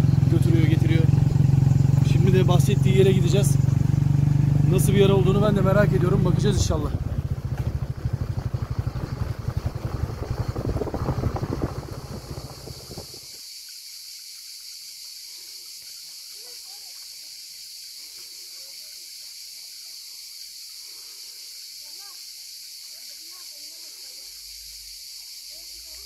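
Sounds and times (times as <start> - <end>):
motorcycle engine running: 0.0 - 13.4
insects chirring: 0.0 - 26.0.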